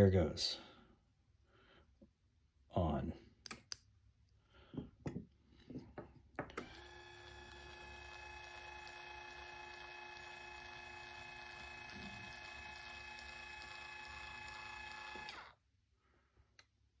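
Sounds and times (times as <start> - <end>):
small motor whining: 6.6 - 15.6.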